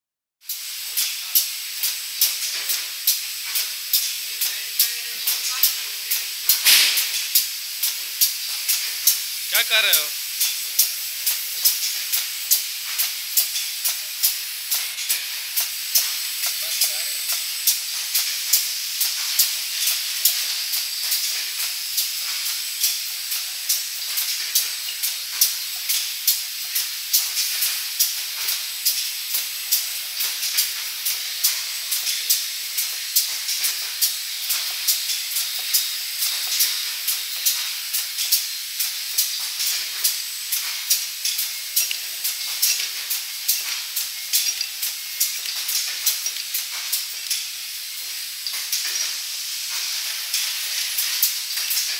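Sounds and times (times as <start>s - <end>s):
machinery hissing: 0.5s - 51.9s
sharp mechanical clicks: 5.2s - 23.4s.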